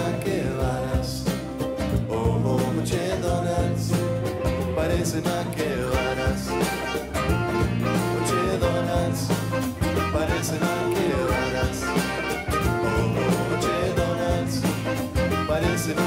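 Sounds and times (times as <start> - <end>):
congas: 0.0 - 16.0
drum kit: 0.0 - 16.0
electric bass: 0.0 - 16.0
nylon-string acoustic guitar: 0.0 - 16.0
saxophones: 5.9 - 16.0.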